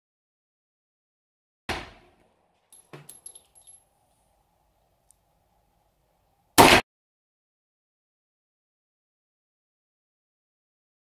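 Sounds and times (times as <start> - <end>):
pistol shot: 6.6 - 6.8.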